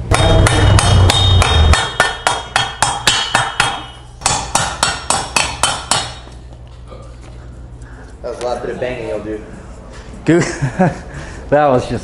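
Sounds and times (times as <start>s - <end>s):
metallic ringing: 0.0s - 6.3s
hammer striking metal frame: 0.0s - 6.4s.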